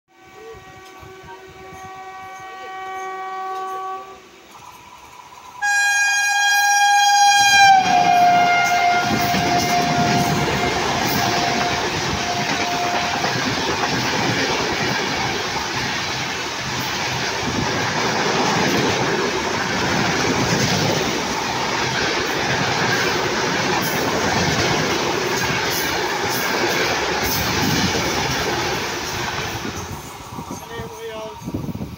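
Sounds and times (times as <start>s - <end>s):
train horn blast: 0.1s - 4.4s, 5.6s - 13.5s
train wheels clickety-clack: 7.4s - 31.9s.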